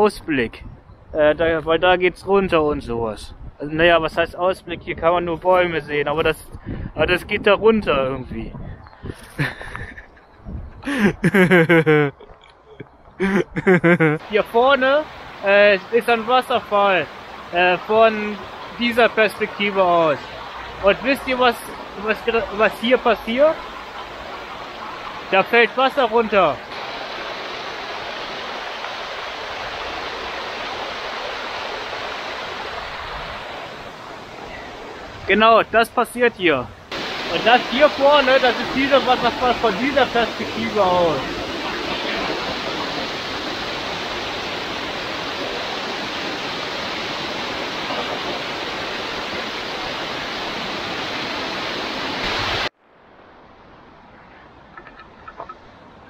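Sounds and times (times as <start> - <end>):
waterfall rushing: 13.2 - 35.3, 36.9 - 52.7
waterfall pouring onto stones: 36.9 - 49.0.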